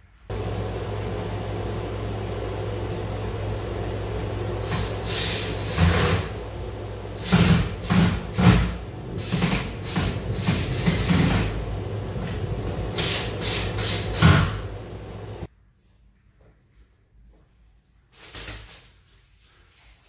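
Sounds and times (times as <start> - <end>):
steady low hum: 0.1 - 15.5.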